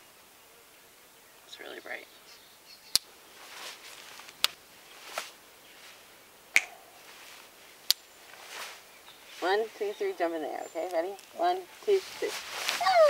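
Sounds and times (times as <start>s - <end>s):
faint rustling: 3.1s - 13.0s
finger snaps: 6.5s - 6.9s.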